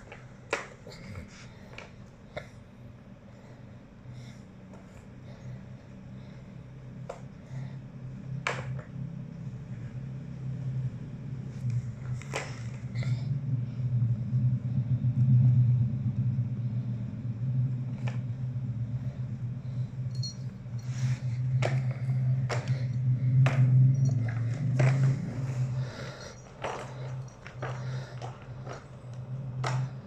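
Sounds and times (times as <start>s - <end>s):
plastic balls rolling on track: 22.4s - 30.0s.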